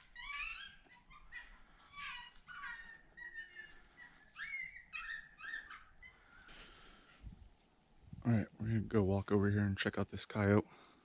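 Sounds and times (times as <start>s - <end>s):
coyote yelping: 0.0s - 7.8s.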